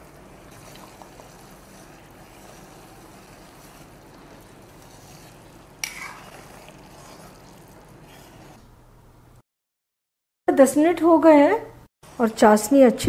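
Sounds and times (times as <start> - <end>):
metal spoon stirring: 0.0 - 8.6
syrup bubbling in a pot: 0.0 - 8.6.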